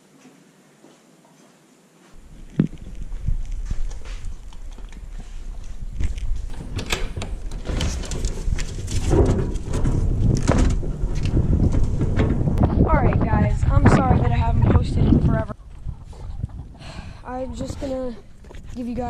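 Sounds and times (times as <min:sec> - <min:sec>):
wind rumble on microphone: 0:02.2 - 0:19.0
wire fencing rattling and clattering: 0:06.3 - 0:12.7.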